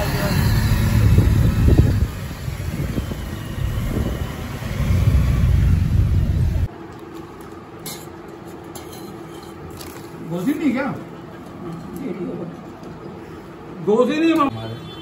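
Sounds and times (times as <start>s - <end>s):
road and engine rumble in cabin: 0.0s - 6.7s.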